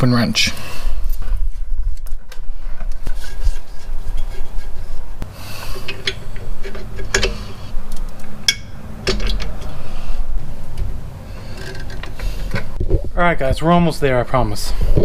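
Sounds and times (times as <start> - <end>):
steady low rumble: 4.8 - 15.0.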